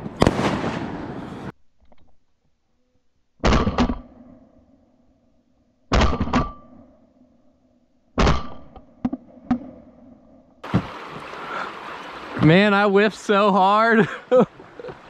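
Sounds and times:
shotgun blasts: 0.0s - 1.2s, 3.4s - 4.1s, 5.9s - 6.6s, 8.2s - 8.6s.

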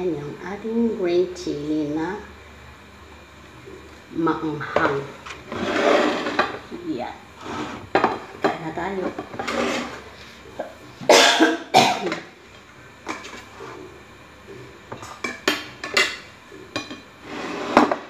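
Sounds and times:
person coughing: 11.0s - 12.2s.

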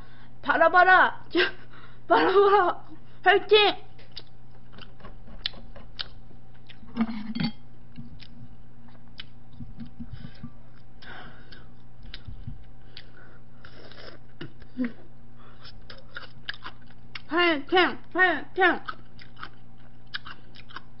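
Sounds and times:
electrical hum: 0.0s - 21.0s
soft chewing: 4.0s - 17.3s, 18.8s - 21.0s.

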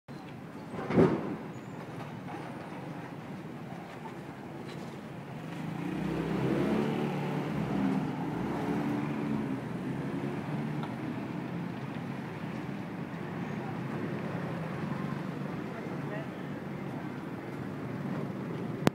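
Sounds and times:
street traffic: 0.1s - 18.9s
vehicle engine passing: 5.4s - 18.8s.

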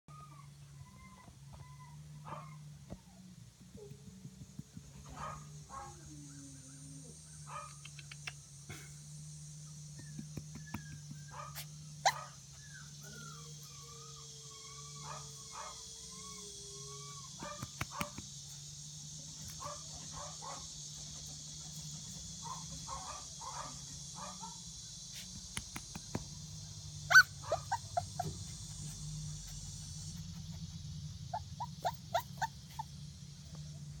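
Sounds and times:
puppy yipping and barking: 0.1s - 3.2s, 10.5s - 18.2s, 27.1s - 33.0s.

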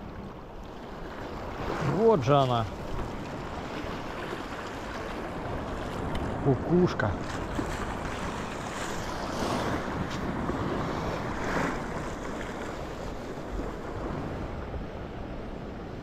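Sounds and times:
sea waves washing on shore: 0.0s - 16.0s
wind on microphone: 7.2s - 16.0s.

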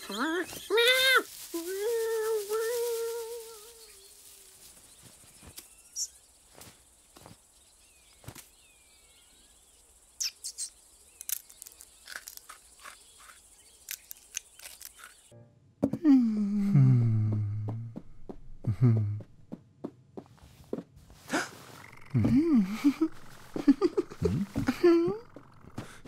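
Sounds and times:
small chirps: 0.0s - 7.3s, 10.2s - 15.3s, 21.6s - 26.0s.

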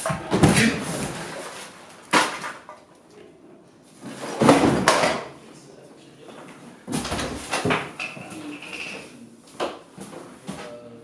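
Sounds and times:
household objects crashing and banging: 4.1s - 5.3s.

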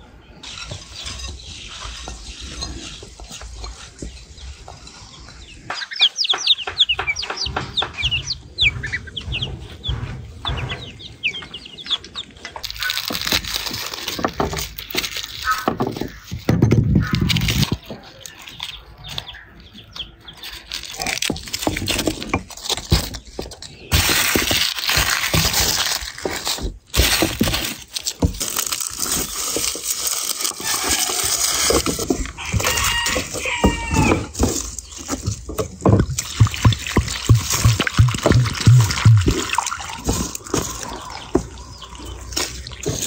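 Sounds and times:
cloves knocking on wood: 5.6s - 9.4s, 30.5s - 43.0s
papery garlic skins crackling: 11.8s - 43.0s.

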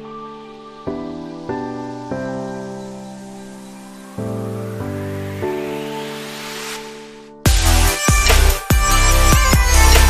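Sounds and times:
held instrumental chords: 0.0s - 10.0s
rising swish: 4.6s - 7.9s.

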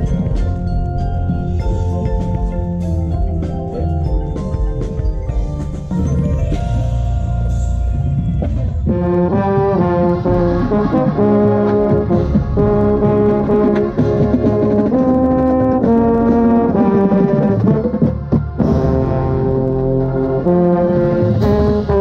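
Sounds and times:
brass section playing: 8.8s - 22.0s
baritone horn: 8.9s - 22.0s.

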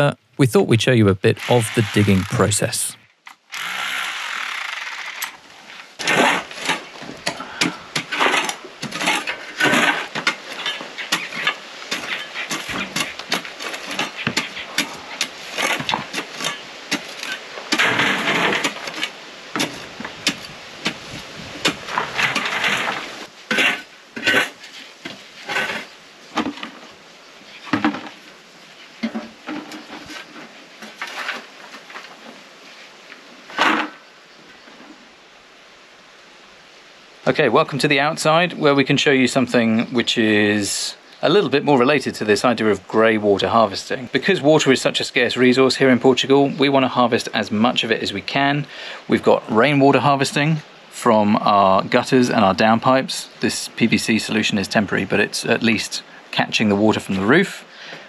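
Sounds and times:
shovels scraping stony soil: 7.9s - 21.0s, 21.6s - 25.9s.

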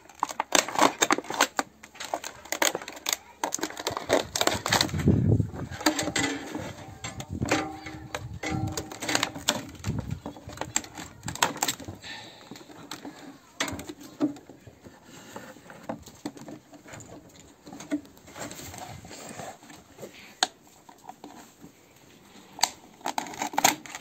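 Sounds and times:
plastic bottle clicking on metal tray: 5.7s - 11.9s.

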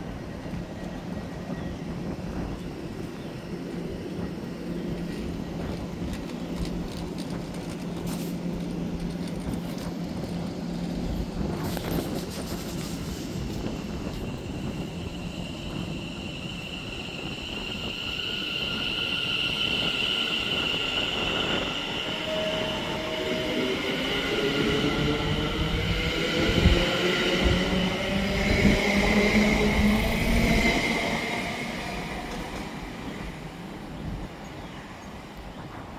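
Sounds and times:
electric train whine: 0.0s - 35.9s.

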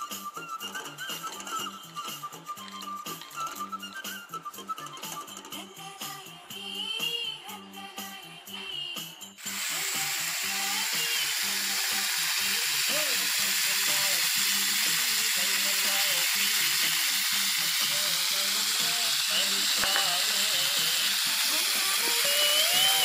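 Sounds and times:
chicken sizzling on hot plate: 9.4s - 23.0s
background voices: 17.8s - 21.1s.

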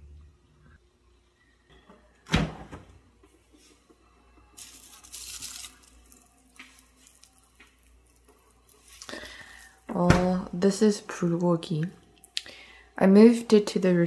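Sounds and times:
plastic bag rustling: 4.6s - 10.0s.

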